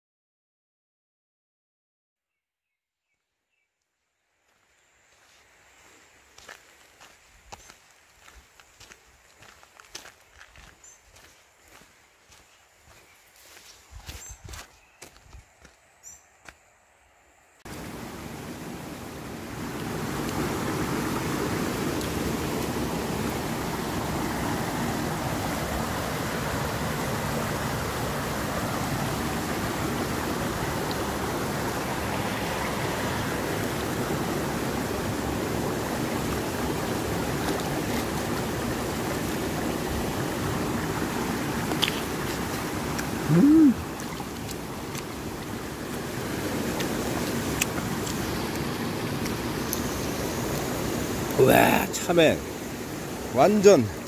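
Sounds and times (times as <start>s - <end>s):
stream running over rocks: 4.4s - 16.6s, 17.6s - 54.0s
footsteps on dirt path: 4.5s - 16.6s.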